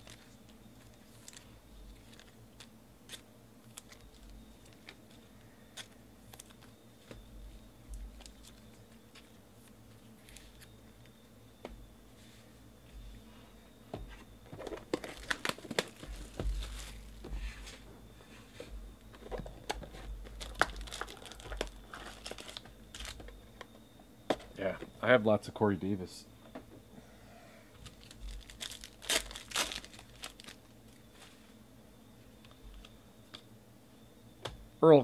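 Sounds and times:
plastic shrink-wrap tearing: 15.0s - 16.0s, 20.3s - 23.2s, 27.8s - 30.6s.

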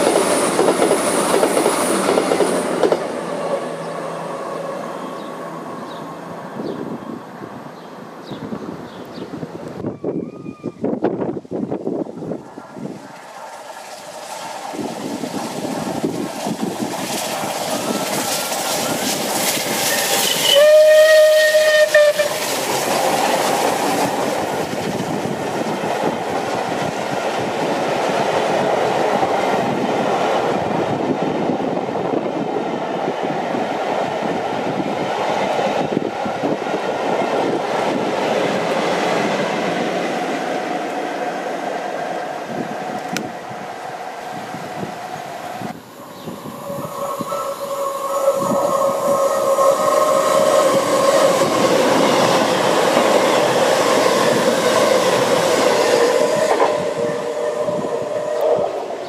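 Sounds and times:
train wheels rolling on rails: 0.0s - 9.8s, 10.9s - 59.0s
steam locomotive whistle: 19.8s - 22.6s, 46.0s - 51.5s, 55.6s - 59.0s.

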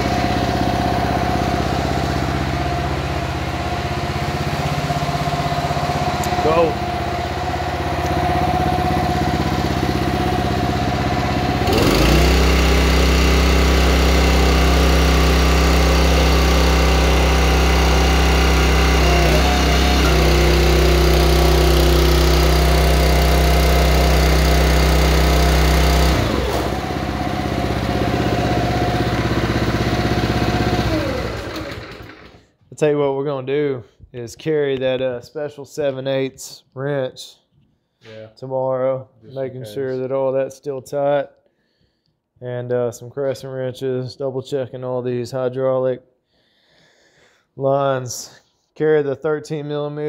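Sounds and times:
small gas engine running: 0.0s - 32.6s.

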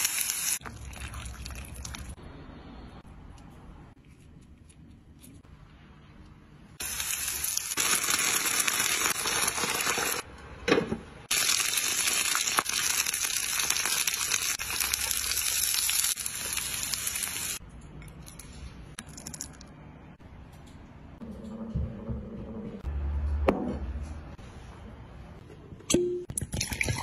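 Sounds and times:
dumplings sizzling in a pan: 6.8s - 10.3s, 11.3s - 17.6s.

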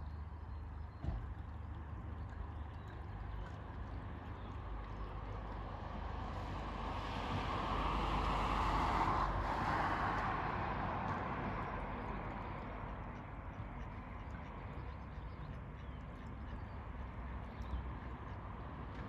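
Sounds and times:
vehicle passing by: 4.6s - 16.2s.

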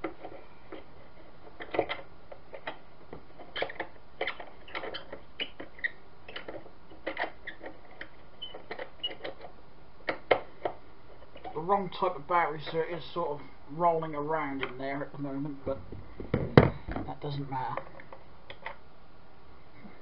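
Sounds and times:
plastic lamp case clicks and knocks: 15.7s - 17.1s.

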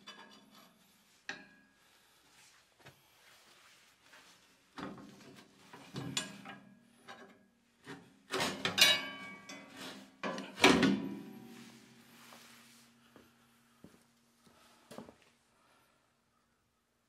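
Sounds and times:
metal chain clanking and rattling: 8.3s - 10.4s.

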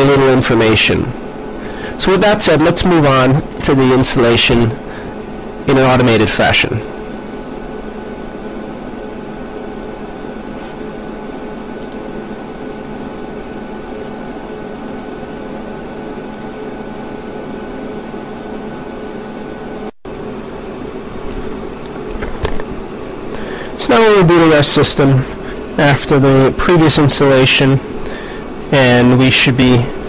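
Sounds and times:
room noise hum and hiss: 0.0s - 30.0s.

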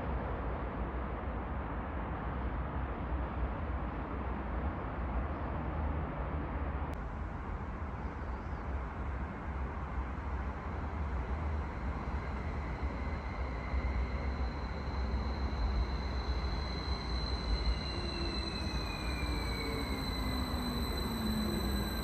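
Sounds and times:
electric train arriving: 7.1s - 22.0s
steady high whine: 7.2s - 22.0s.

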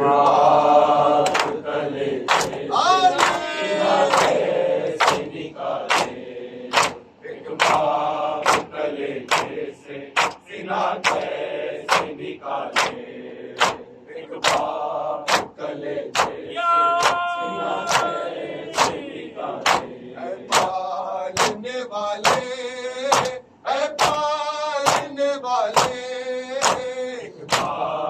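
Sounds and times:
men chanting together: 0.0s - 28.0s
hands slapping chests: 1.2s - 1.6s, 2.3s - 3.5s, 4.1s - 4.4s, 5.0s - 5.3s, 5.9s - 8.7s, 9.3s - 9.6s, 10.2s - 10.4s, 11.0s - 12.2s, 12.8s - 13.0s, 13.6s - 13.8s, 14.4s - 14.7s, 15.3s - 15.6s, 16.2s - 16.4s, 17.0s - 17.3s, 17.9s - 18.2s, 18.8s - 19.0s, 19.6s - 19.9s, 20.5s - 20.8s, 21.4s - 21.6s, 22.2s - 22.5s, 23.1s - 23.4s, 24.0s - 24.3s, 24.9s - 26.0s, 26.6s - 27.8s.

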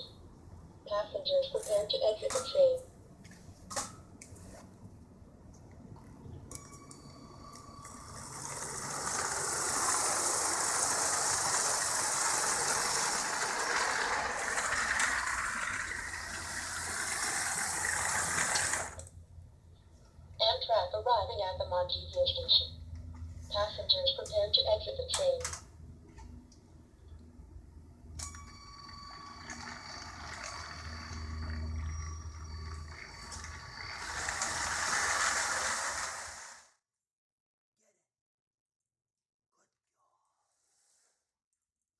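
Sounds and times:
model train whirring and rattling: 7.6s - 19.1s, 28.2s - 36.7s.

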